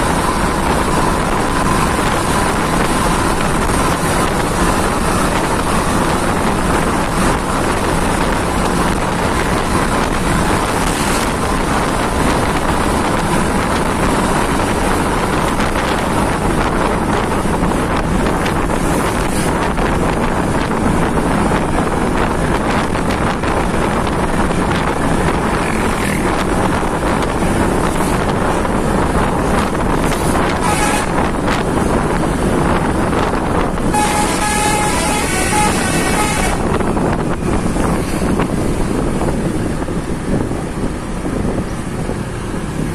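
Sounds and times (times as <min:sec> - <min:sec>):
bus engine running: 0:00.0 - 0:42.9
road noise: 0:00.0 - 0:42.9
wind on microphone: 0:00.0 - 0:42.9.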